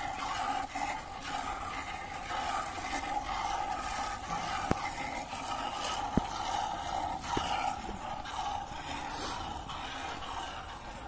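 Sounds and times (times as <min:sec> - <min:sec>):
milk squirting into bucket: 0:00.0 - 0:11.0.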